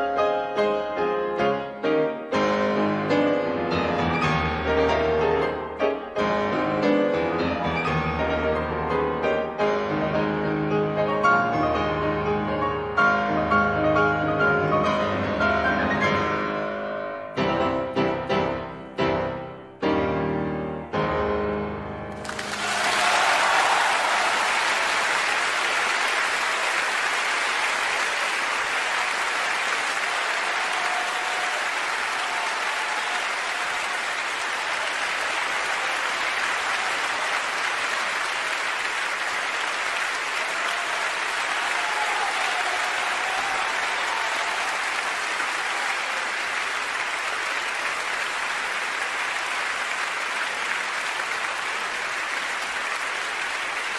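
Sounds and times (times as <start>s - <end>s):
audience applauding: 22.1s - 53.9s.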